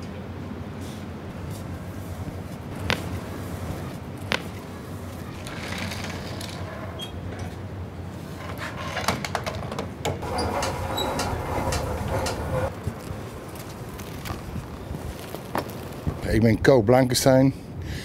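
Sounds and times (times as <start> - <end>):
steady low hum: 0.0 - 8.4, 10.2 - 16.3
hose clattering in van: 8.6 - 12.7.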